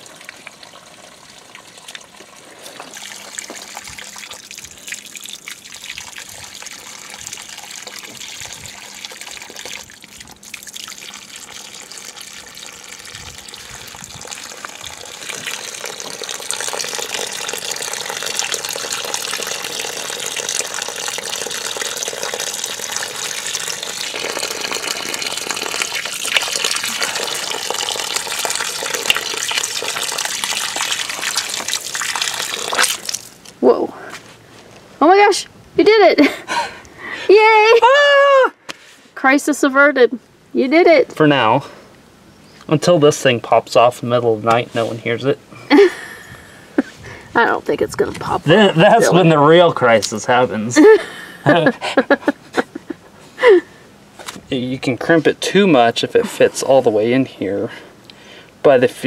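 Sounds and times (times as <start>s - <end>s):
water gushing from a pipe: 0.0s - 33.6s.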